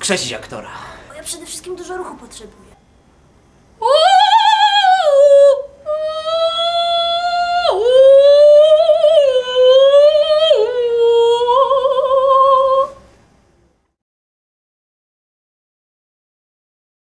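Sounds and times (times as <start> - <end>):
woman singing without words: 3.8 - 13.1.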